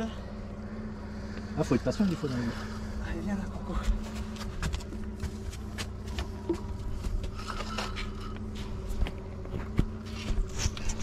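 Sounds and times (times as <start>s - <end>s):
outboard motor idling: 0.0s - 11.0s
clicks and knocks on a boat: 3.8s - 11.0s.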